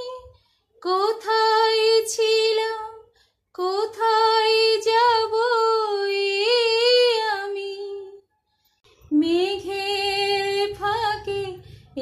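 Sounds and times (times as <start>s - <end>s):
woman singing unaccompanied: 0.0s - 8.2s, 9.1s - 12.0s.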